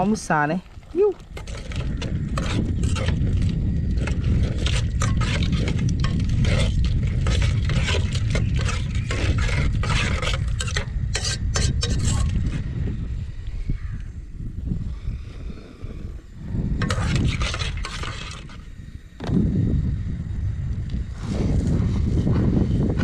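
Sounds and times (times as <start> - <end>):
steady low rumble: 0.0 - 23.0
metal spoon scraping a pot: 1.3 - 12.6, 16.8 - 18.7.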